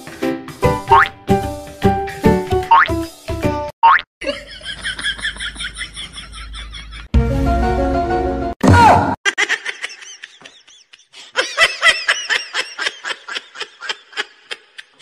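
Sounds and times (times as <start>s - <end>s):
person laughing: 4.2s - 7.1s, 9.2s - 15.0s.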